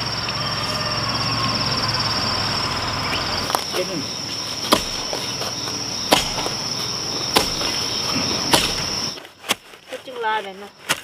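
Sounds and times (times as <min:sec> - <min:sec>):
high-pitched insect drone: 0:00.0 - 0:09.2
sharp knocks: 0:04.6 - 0:06.6, 0:07.2 - 0:09.1.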